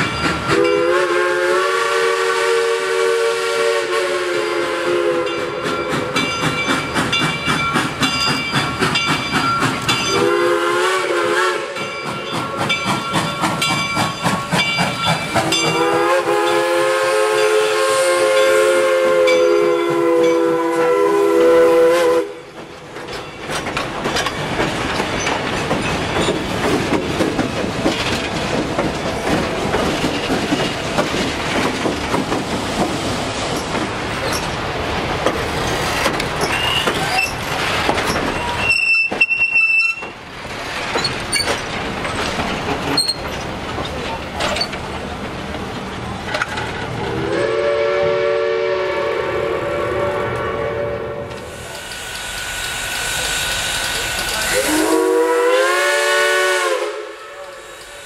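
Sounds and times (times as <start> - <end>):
train rumble and wheel clatter: 0.0 - 58.0
train horn chord: 0.5 - 5.6, 10.1 - 11.9, 15.6 - 22.4, 47.2 - 51.5, 54.5 - 57.8
high wheel squeal: 36.4 - 40.1, 42.9 - 43.3.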